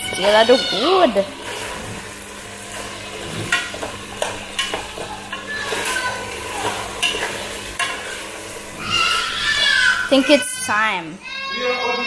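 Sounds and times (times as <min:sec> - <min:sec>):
light sizzle: 0:00.0 - 0:11.2.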